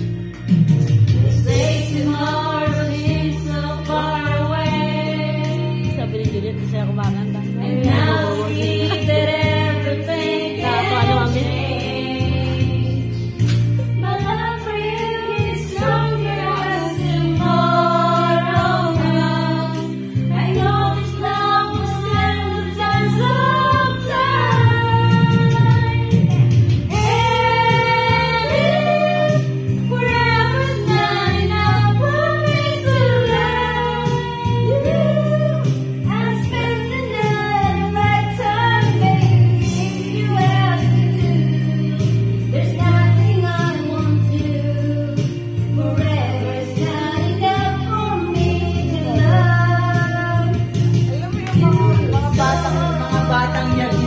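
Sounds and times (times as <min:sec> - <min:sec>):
backing music track: 0:00.0 - 0:54.0
person singing into microphone: 0:45.8 - 0:54.0.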